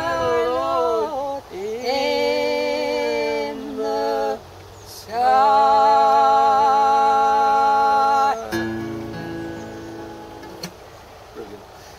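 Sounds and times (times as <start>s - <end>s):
woman and man humming in harmony: 5.1s - 9.7s.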